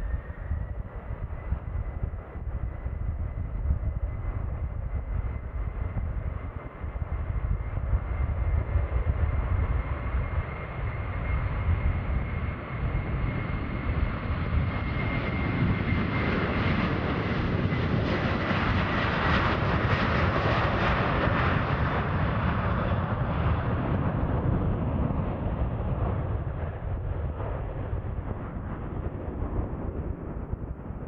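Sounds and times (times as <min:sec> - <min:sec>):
jet taking off: 0:07.2 - 0:31.0.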